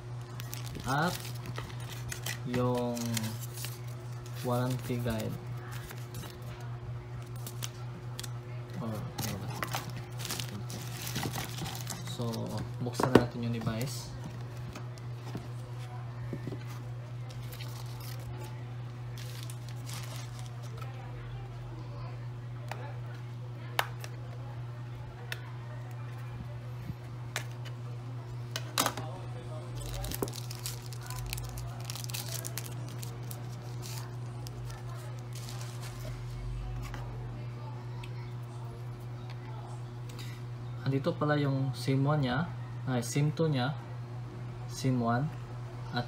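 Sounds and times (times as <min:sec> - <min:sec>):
cardboard packaging rustling: 0:00.2 - 0:06.5, 0:07.3 - 0:18.6, 0:19.2 - 0:20.9, 0:29.8 - 0:37.0.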